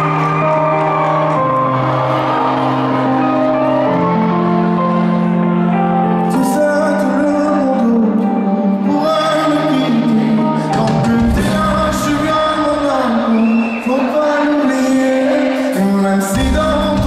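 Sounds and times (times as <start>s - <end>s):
audience cheering: 0.0s - 5.8s, 10.7s - 17.0s
keyboard chords: 0.0s - 17.0s
person singing: 0.0s - 17.0s.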